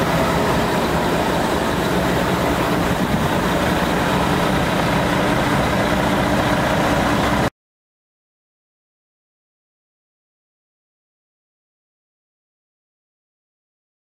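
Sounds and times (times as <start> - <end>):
truck diesel engine idling: 0.0 - 7.5.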